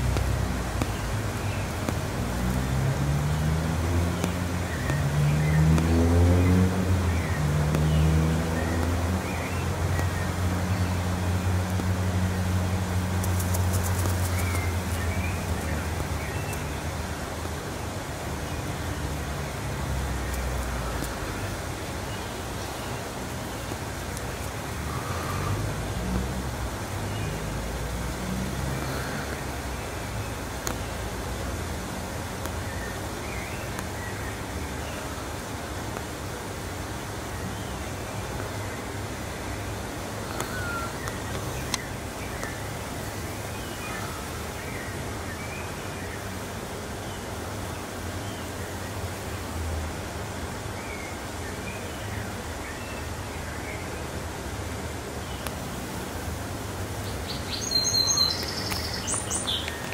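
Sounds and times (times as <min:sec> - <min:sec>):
even hiss: 0:00.0 - 0:59.9
low city rumble: 0:00.0 - 0:59.9
faint clicks: 0:20.2 - 0:21.3, 0:40.2 - 0:42.6, 0:58.3 - 0:59.9.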